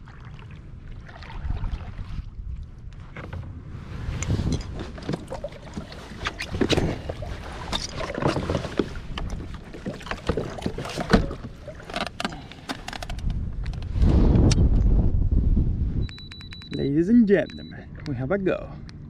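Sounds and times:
water sounds: 0.0 - 13.3
knocks and clatter on kayak: 4.5 - 13.8
low rumble: 12.5 - 16.8.

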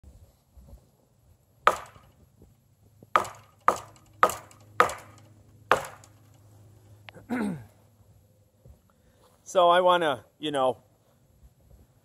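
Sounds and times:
sharp knocks of wood being struck: 1.6 - 2.2, 3.0 - 6.4.

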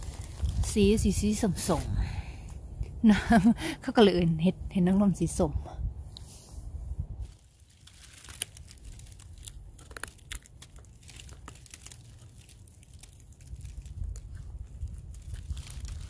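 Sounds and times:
dry forest litter crackling: 0.0 - 2.5, 7.2 - 16.0
low steady rumble: 0.0 - 16.0.

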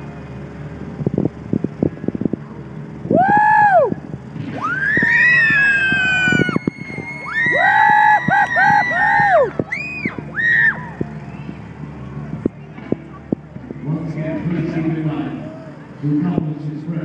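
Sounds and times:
girls screaming and cheering: 3.1 - 4.0, 4.6 - 11.3.

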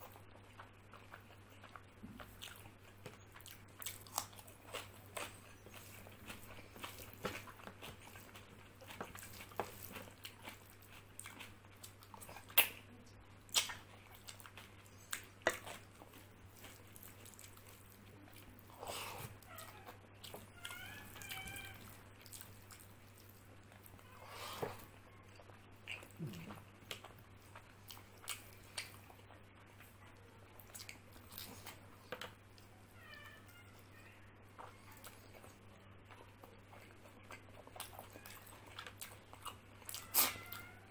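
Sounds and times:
wet chewing: 0.0 - 32.7, 34.5 - 40.8
low electrical hum: 0.0 - 40.9
lip smacks: 13.5 - 14.4.

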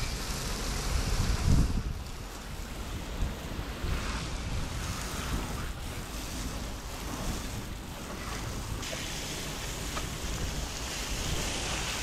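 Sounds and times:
wind rumbling on microphone: 0.0 - 12.0
pressure washer spray hissing: 8.4 - 12.0.

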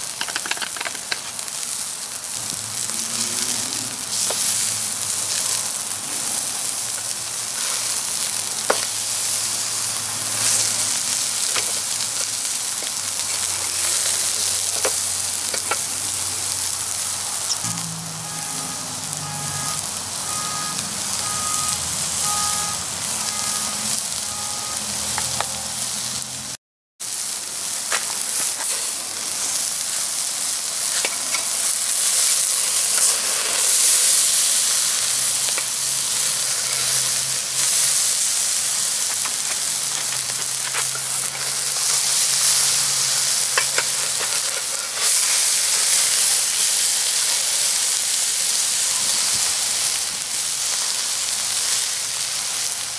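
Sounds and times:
burgers sizzling on a grill: 0.0 - 52.9
metal spatula clicking on grate: 0.1 - 1.2
fat spitting onto hot coals: 2.3 - 16.8, 27.8 - 47.8.

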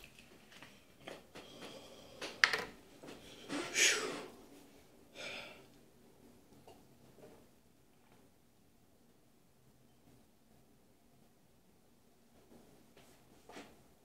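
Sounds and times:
man breathing forcefully: 3.4 - 4.3.

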